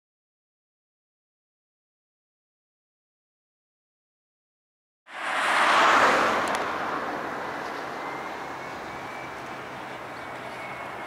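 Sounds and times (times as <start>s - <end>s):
distant jet engines rushing: 5.1s - 11.0s.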